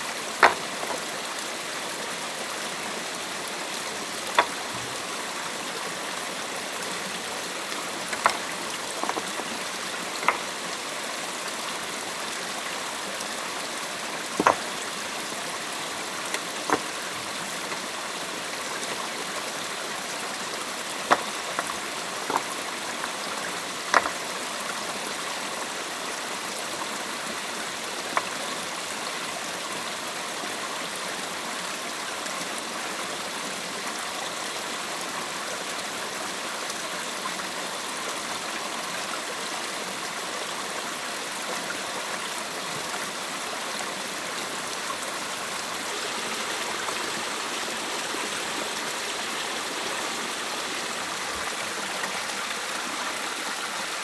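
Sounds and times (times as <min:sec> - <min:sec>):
stream water rushing: 0:00.0 - 0:54.0
sharp knocks: 0:14.4 - 0:14.6.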